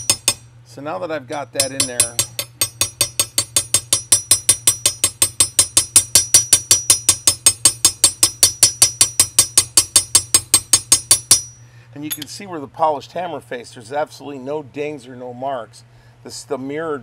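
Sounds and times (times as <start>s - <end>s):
small hammer tapping metal: 0.0s - 0.4s, 1.3s - 12.3s.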